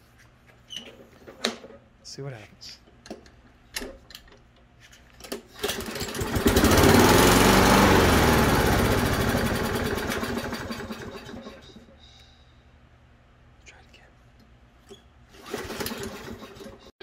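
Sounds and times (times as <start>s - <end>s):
mower engine firing and running: 5.4s - 11.6s, 15.3s - 16.9s.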